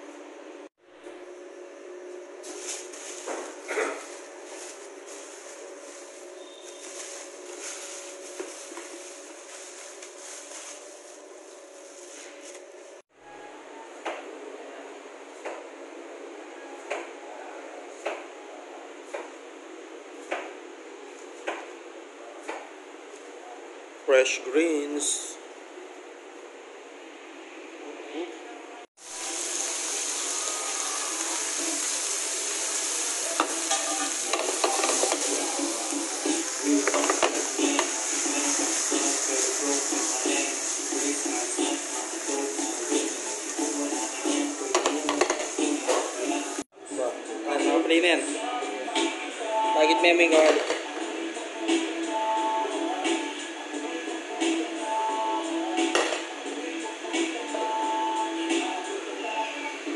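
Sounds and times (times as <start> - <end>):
plastic bags crinkling: 2.4 - 12.2
food sizzling in hot oil: 29.0 - 46.7.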